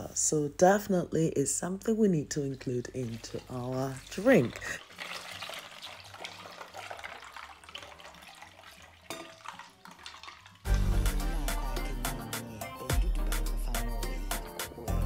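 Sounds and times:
faint background music: 0.0 - 15.0
liquid pouring over ice: 2.4 - 11.7
loud music with a beat: 10.7 - 15.0.

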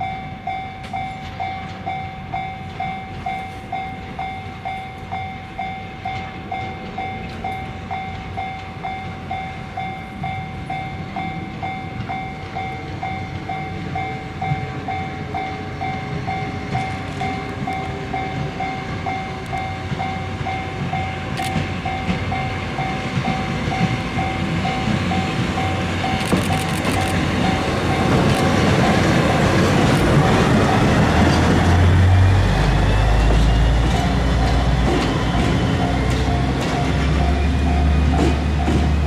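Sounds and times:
diesel locomotive rumble: 0.0 - 39.0.

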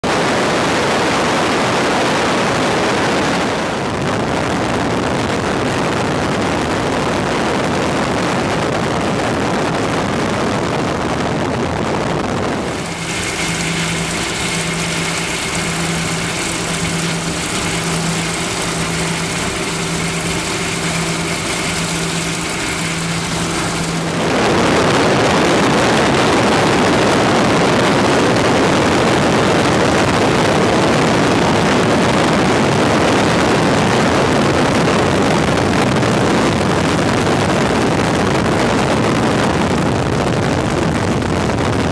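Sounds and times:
wind rushing: 11.4 - 27.6
piston aircraft engine: 12.0 - 39.4.

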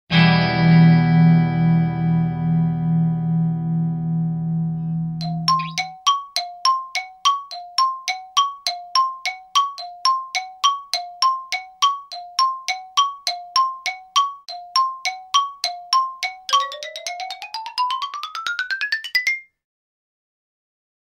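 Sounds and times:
bell-like two-note music: 4.7 - 17.4.

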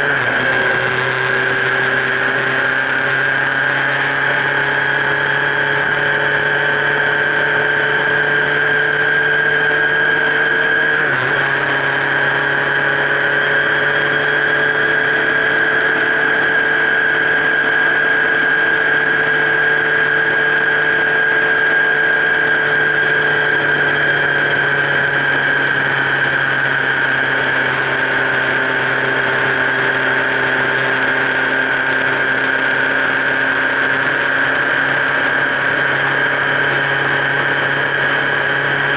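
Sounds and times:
vehicle high whine: 0.0 - 38.9.

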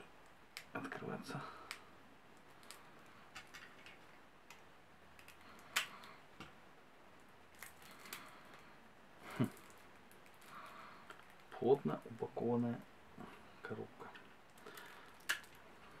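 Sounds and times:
fingers rustling card wrapping: 7.5 - 8.6.

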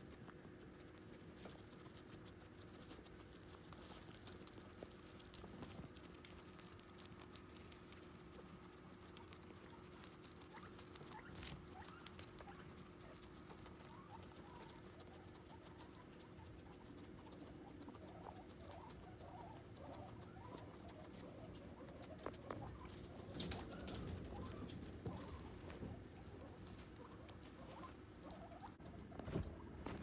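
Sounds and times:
guinea pigs chewing: 0.0 - 30.0
rustling through hay: 19.5 - 30.0.

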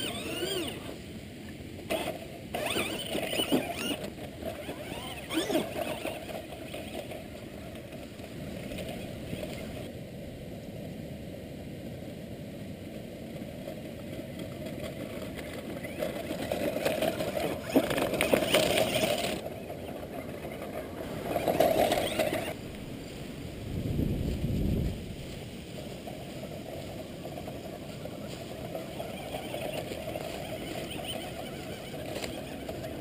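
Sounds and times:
toy truck motor whining: 0.0 - 1.0, 1.9 - 9.9, 14.9 - 22.6, 27.4 - 33.0.

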